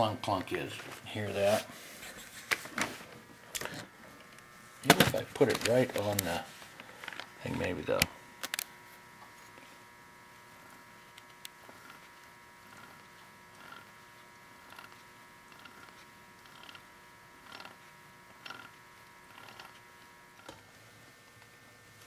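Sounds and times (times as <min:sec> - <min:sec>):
gears creaking and clunking: 0:14.7 - 0:16.8, 0:17.4 - 0:17.8, 0:18.4 - 0:18.7, 0:19.3 - 0:19.8.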